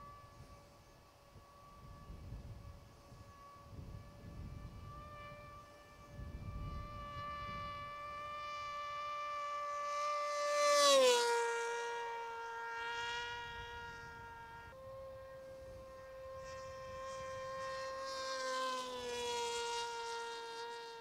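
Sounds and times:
electric motor propeller whining: 0:00.0 - 0:21.0.

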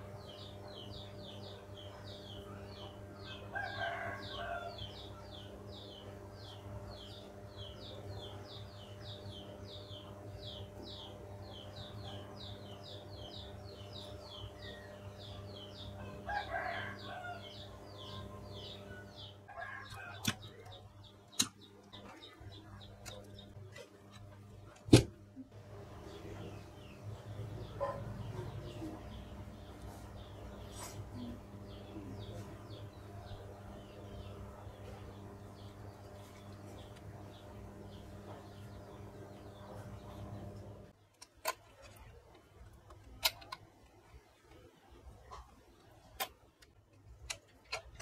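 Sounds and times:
steady low hum: 0:00.0 - 0:48.0
rooster crowing: 0:03.4 - 0:04.9, 0:16.0 - 0:17.6, 0:19.5 - 0:20.3.

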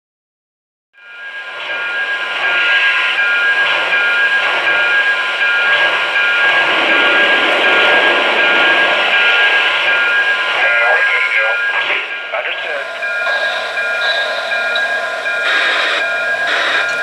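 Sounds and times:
faint pulsing tones: 0:01.2 - 0:17.0
steam hissing: 0:01.5 - 0:17.0.

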